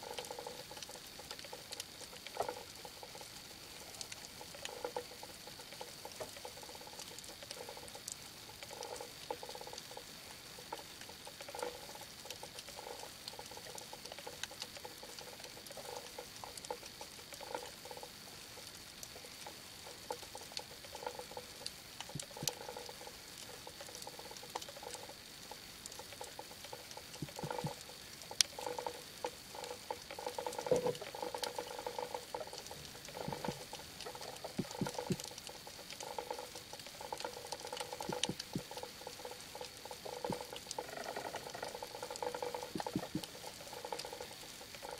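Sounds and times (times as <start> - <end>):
muffled bubbling water: 0.0 - 44.9
sharp underwater clicks and crackle: 0.0 - 44.9.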